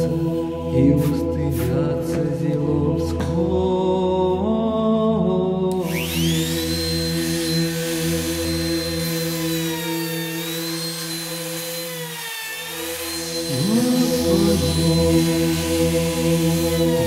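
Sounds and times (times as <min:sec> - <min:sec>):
choral chant over drone: 0:00.0 - 0:05.9, 0:13.4 - 0:17.0
trim router whining: 0:05.7 - 0:17.0.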